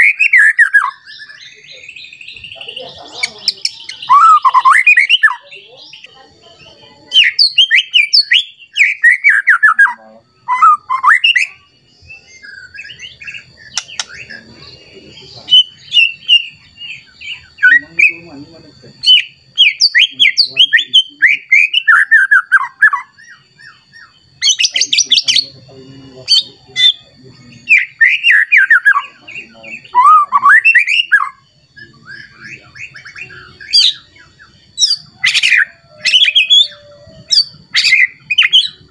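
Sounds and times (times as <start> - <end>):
bird singing whistles and chatter: 0.0 - 38.9
faint steady high tone: 9.5 - 19.6, 20.5 - 38.9.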